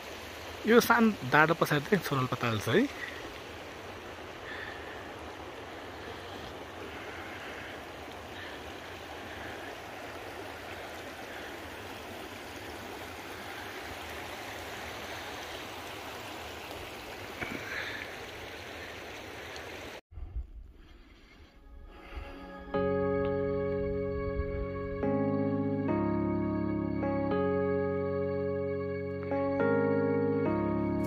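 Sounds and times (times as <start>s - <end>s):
running water: 0.0s - 20.0s.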